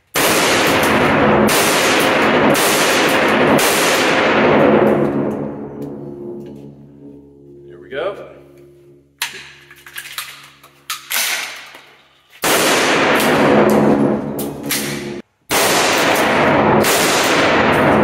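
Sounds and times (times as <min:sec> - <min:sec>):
loud shotgun shots: 0:00.1 - 0:05.3, 0:12.4 - 0:18.0.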